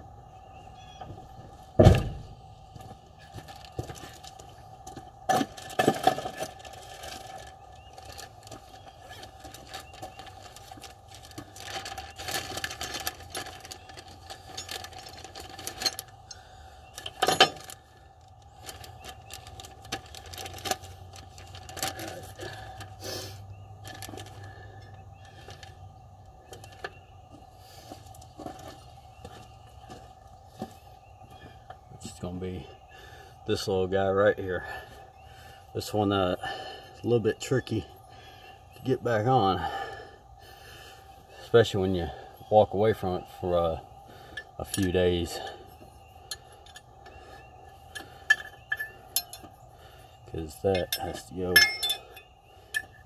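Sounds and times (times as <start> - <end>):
faint steady hum: 0.0 - 53.0
metallic clinks of hand tools: 50.7 - 53.0.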